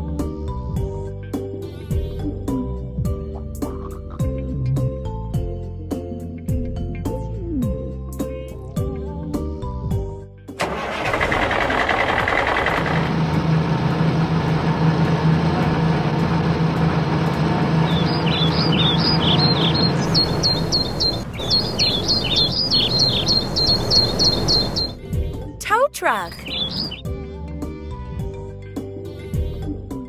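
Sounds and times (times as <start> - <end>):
truck engine humming: 10.6 - 25.0
small birds chirping: 17.7 - 25.5, 26.3 - 27.1.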